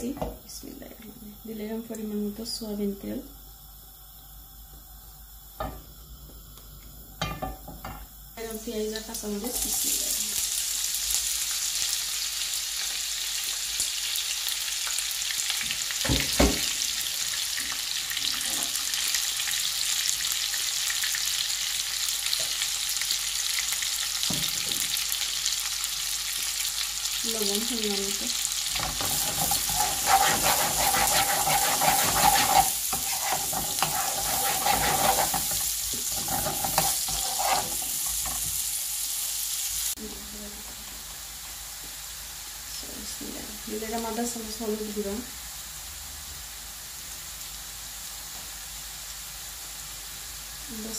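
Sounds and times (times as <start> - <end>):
vegetables sizzling in oil: 0.0 - 50.9
metal spoon scraping pan: 28.8 - 38.4.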